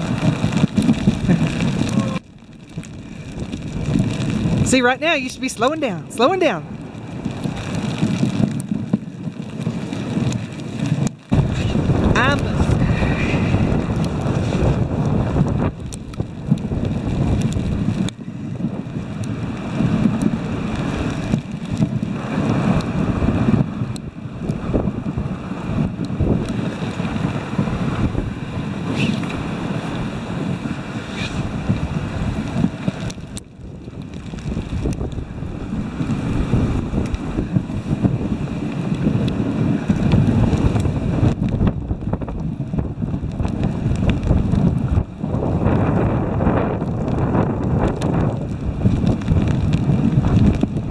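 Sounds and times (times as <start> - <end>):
sled runners sliding over snow: 0.0 - 50.9
wind rumbling on microphone: 0.0 - 50.9.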